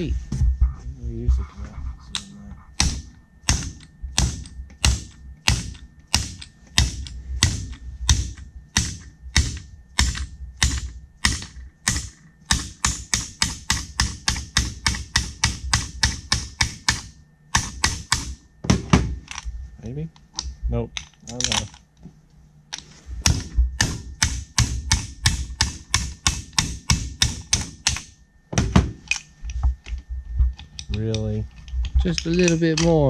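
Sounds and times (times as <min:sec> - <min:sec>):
hammer tapping metal: 0:02.1 - 0:19.1, 0:23.2 - 0:28.9.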